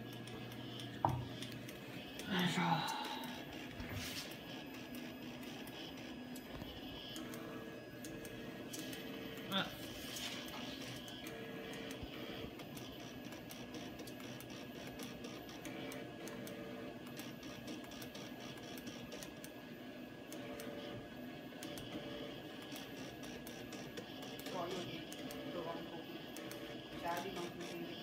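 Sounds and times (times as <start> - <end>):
stepper motors whining: 0.0 - 19.2.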